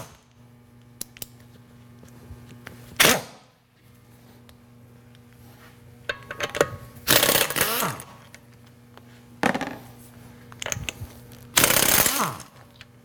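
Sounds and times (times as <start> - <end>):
pneumatic impact wrench bursts: 7.1 - 8.1, 11.6 - 12.6
wrench whine spinning down: 7.1 - 8.1.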